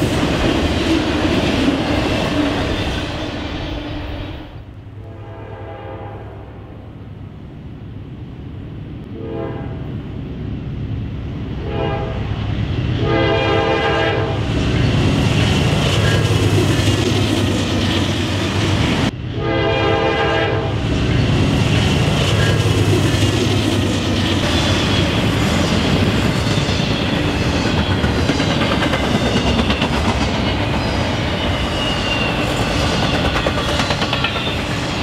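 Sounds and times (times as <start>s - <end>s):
train wheels on rails: 0.0s - 4.8s, 10.3s - 35.0s
locomotive air horn blasts: 5.0s - 6.6s, 9.1s - 9.9s, 11.6s - 12.4s, 13.0s - 14.4s, 19.3s - 20.8s.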